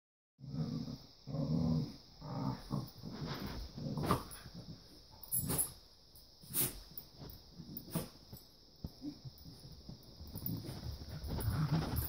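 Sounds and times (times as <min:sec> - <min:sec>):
dogs play-growling: 0:00.4 - 0:05.8, 0:10.3 - 0:12.0
dogs scuffling: 0:09.6 - 0:12.0.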